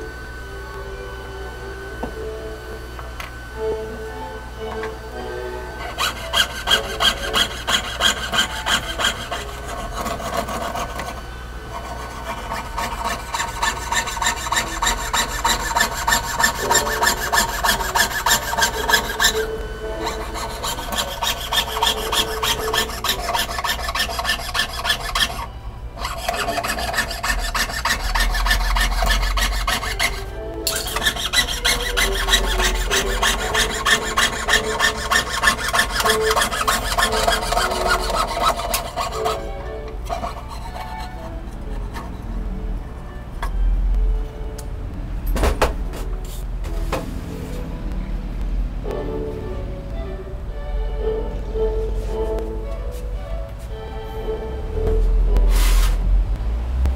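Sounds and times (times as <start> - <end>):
saw rasping through metal: 5.8 - 42.3.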